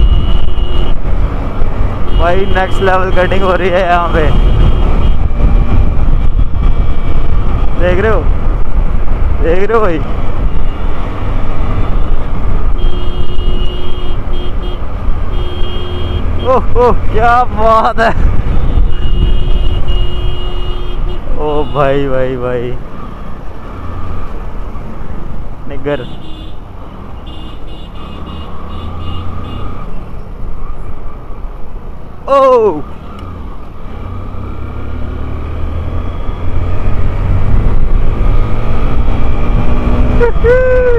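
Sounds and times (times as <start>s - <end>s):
vehicle horn: 0.0s - 1.0s, 4.1s - 5.3s, 12.8s - 16.4s, 18.5s - 21.8s, 26.0s - 26.6s, 27.2s - 29.7s
wind rushing over microphone: 0.0s - 15.4s, 16.2s - 21.4s, 33.3s - 40.9s
motorcycle engine and road rumble: 0.0s - 40.9s.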